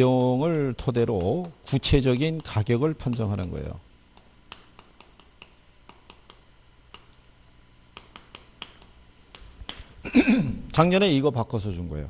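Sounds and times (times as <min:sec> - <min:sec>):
chalk tapping on chalkboard: 0:01.2 - 0:07.2, 0:07.9 - 0:10.0.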